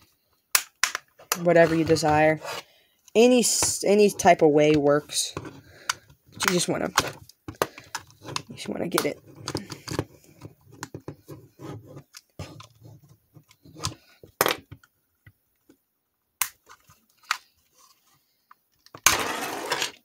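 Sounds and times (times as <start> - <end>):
plastic clips clicking and creaking: 5.8 - 11.0.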